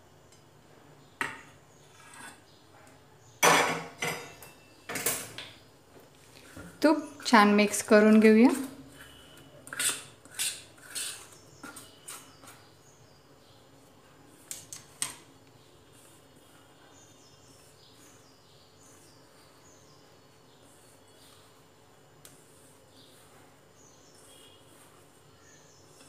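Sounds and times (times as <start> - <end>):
metal spoon scraping steel bowl: 1.8 - 2.6, 8.5 - 12.6.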